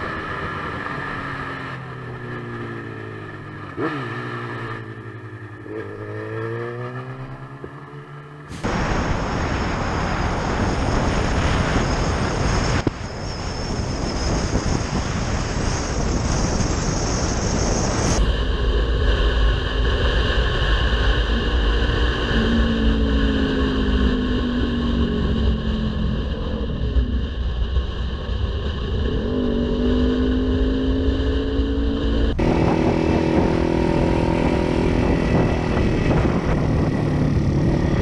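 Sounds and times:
motorcycle engine rumbling: 0:20.9 - 0:38.0
wind buffeting camera: 0:31.6 - 0:38.0.

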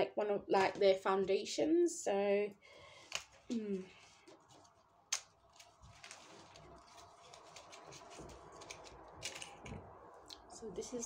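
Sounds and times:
packaging clicks and rustles: 0:03.0 - 0:09.8.

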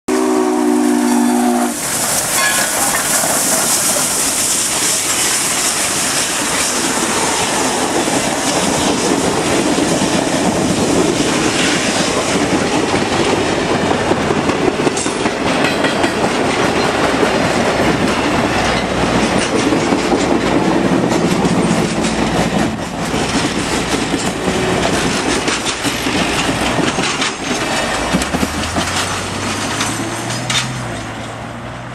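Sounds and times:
steam locomotive whistle: 0:00.1 - 0:08.0
locomotive hissing: 0:00.1 - 0:31.6
train cars rumbling over rails: 0:00.1 - 0:31.9.

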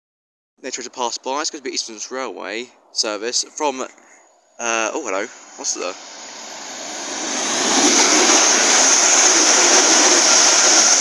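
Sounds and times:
train passing at speed: 0:04.8 - 0:11.0.

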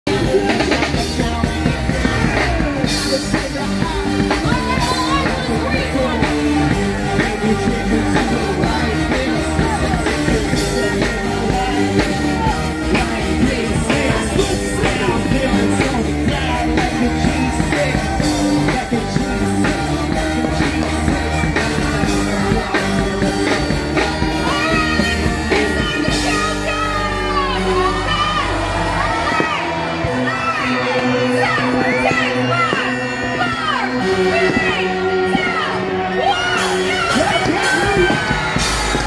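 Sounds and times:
loud music with singing: 0:00.0 - 0:39.0.

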